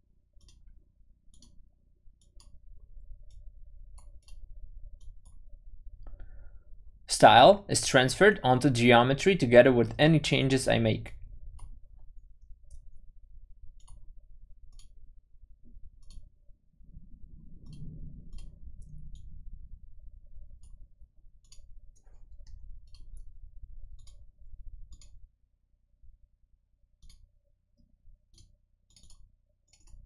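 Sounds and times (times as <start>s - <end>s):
low steady background hum: 0.0s - 30.0s
computer mouse clicking: 0.4s - 0.7s, 1.3s - 1.6s, 2.2s - 2.6s, 3.2s - 5.5s, 13.8s - 14.1s, 14.7s - 15.0s, 15.6s - 16.3s, 17.3s - 19.4s, 21.4s - 23.3s, 23.9s - 25.2s, 27.0s - 30.0s.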